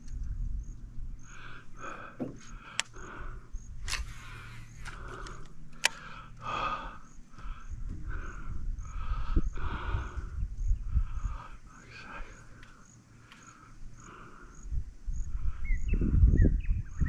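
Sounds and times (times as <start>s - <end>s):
birds calling: 1.1s - 17.0s
sharp clicks: 2.6s - 3.0s, 3.8s - 6.4s
electric trolling motor hum: 3.9s - 5.9s.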